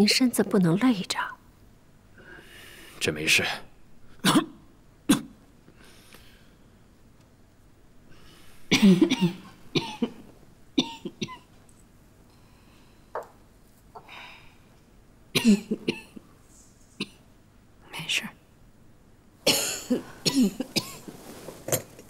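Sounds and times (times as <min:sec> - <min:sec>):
person coughing: 0:08.7 - 0:10.2, 0:15.4 - 0:16.2, 0:19.4 - 0:21.0.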